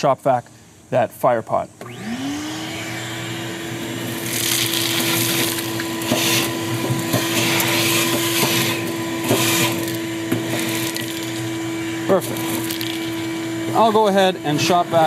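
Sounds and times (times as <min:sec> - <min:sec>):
shop vacuum humming: 0:01.8 - 0:15.0
debris rattling up hose: 0:04.0 - 0:15.0.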